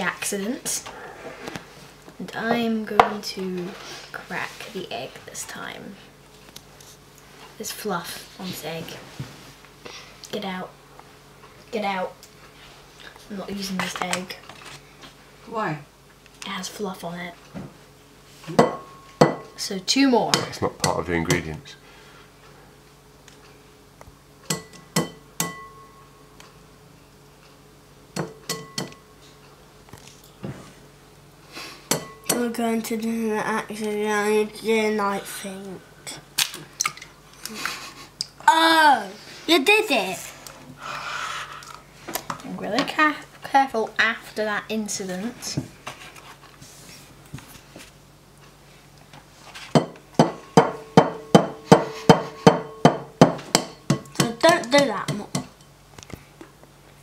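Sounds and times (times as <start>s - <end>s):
glass ringing: 24.5s - 26.2s
egg tapping on glass bowl: 49.8s - 55.5s.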